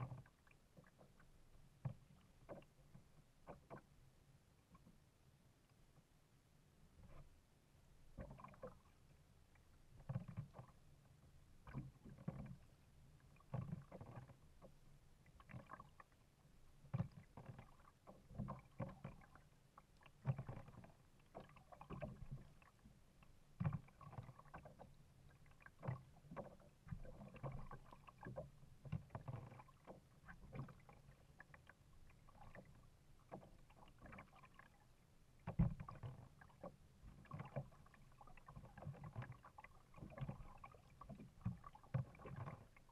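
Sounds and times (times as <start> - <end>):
paddle splashing water: 0.0 - 4.0, 8.1 - 9.2, 9.8 - 42.9
water knocking against hull: 13.4 - 14.8, 16.9 - 19.4, 20.1 - 22.8, 23.6 - 34.6, 35.4 - 42.9.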